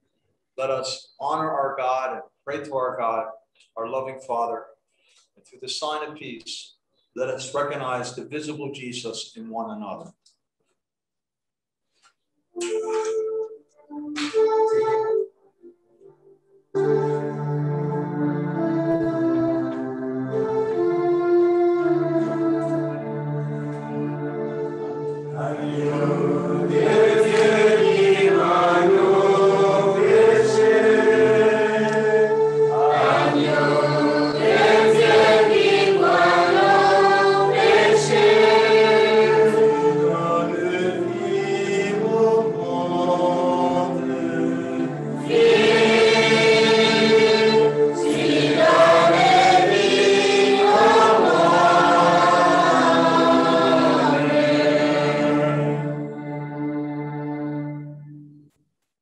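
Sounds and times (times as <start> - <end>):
choir singing: 16.8 - 57.8.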